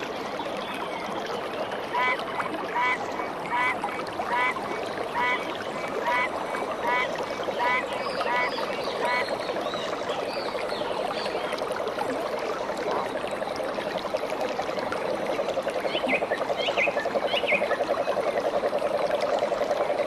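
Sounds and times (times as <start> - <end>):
running water: 0.0 - 20.0
frog chorus pulsing: 1.8 - 20.0
short croaking calls: 2.8 - 9.4.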